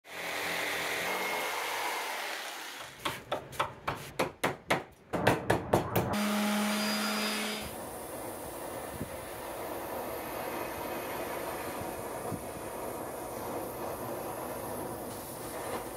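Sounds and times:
jigsaw cutting wood: 0.1s - 3.0s, 6.2s - 7.7s
small power tool motor humming: 0.1s - 3.0s, 6.2s - 7.8s.

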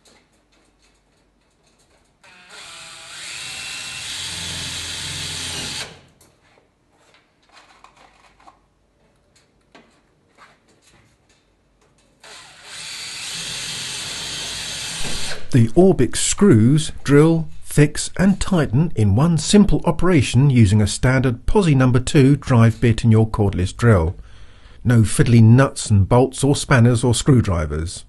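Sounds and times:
nuts and bolts clicking and rattling: 0.0s - 2.3s
cordless drill driving screws into steel: 2.2s - 6.2s, 12.2s - 15.5s.

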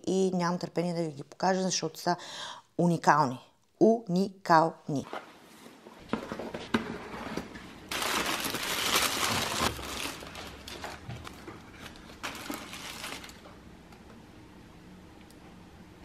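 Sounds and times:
tissue paper crinkling: 7.8s - 13.5s.

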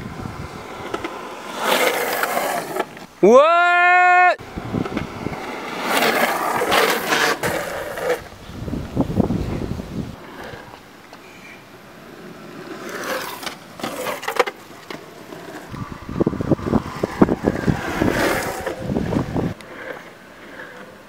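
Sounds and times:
longboard wheels rolling on asphalt: 0.0s - 3.3s, 4.4s - 21.0s.

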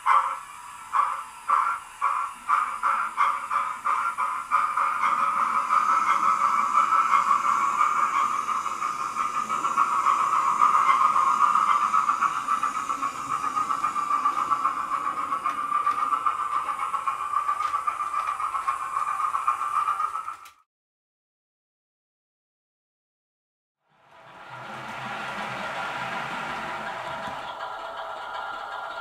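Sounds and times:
model train running whirr: 0.0s - 20.6s, 23.9s - 29.0s.

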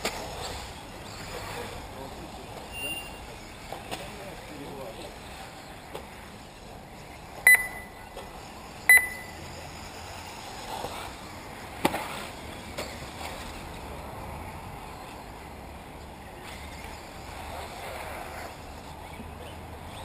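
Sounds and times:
rc buggy motors and tyres: 0.0s - 20.0s.

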